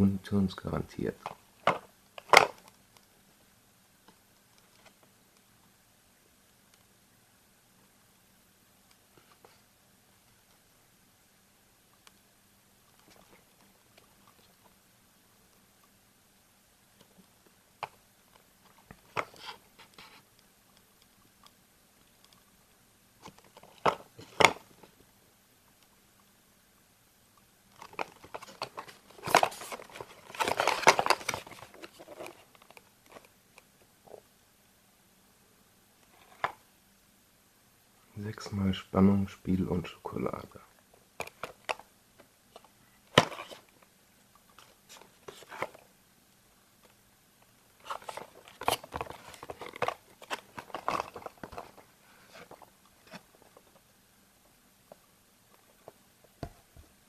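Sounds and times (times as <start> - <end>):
cardboard packaging crackling: 27.8 - 33.3, 47.8 - 53.7.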